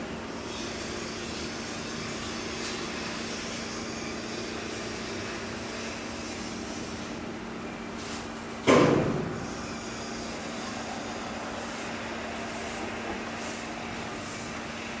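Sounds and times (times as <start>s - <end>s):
sudden loud knock: 8.7s - 9.3s.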